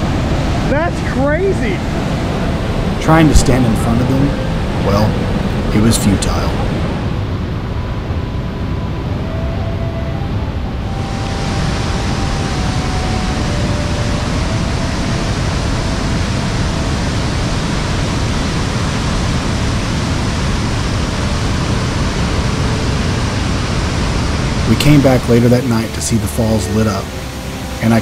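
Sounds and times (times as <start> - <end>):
waterfall rushing onto boulders: 11.0 - 28.0.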